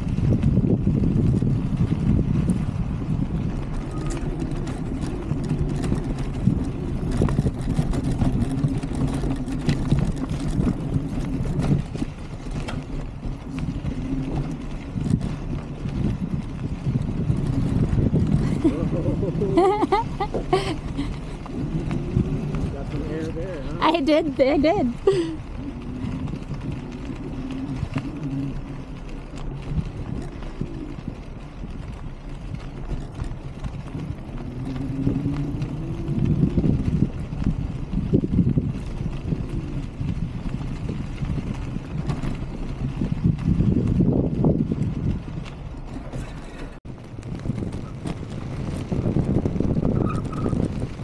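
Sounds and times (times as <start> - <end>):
bike clicking and rattling: 0.0 - 51.0
tyres rumbling on gravel: 0.0 - 51.0.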